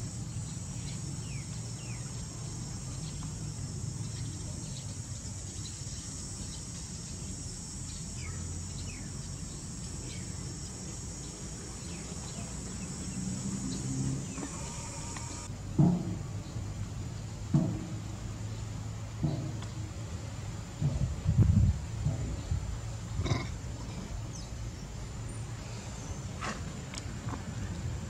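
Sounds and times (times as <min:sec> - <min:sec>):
high-pitched insect chorus: 0:00.0 - 0:28.0
bird chirps: 0:04.0 - 0:10.4, 0:11.2 - 0:15.5.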